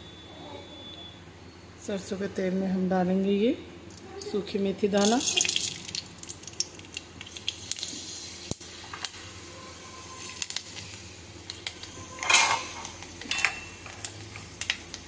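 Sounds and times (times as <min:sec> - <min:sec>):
seeds sizzling in hot oil: 0:05.0 - 0:15.0.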